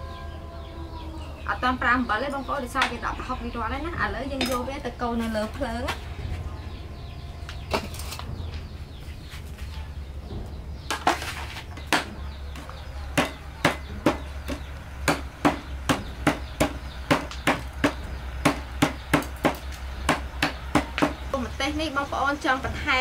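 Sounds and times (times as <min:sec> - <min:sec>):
wooden pestle pounding on board: 0:11.8 - 0:21.3.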